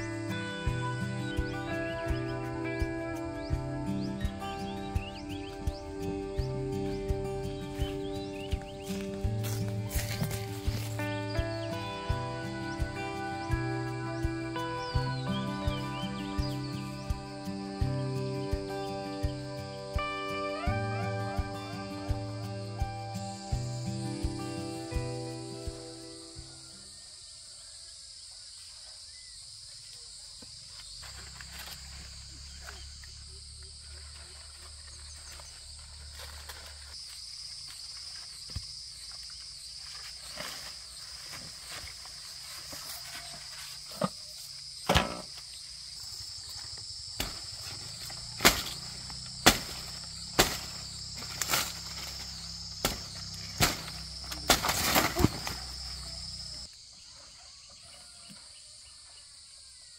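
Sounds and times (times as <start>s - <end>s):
high insect chorus: 0.0s - 59.9s
sharp knocks or chops: 49.4s - 50.7s.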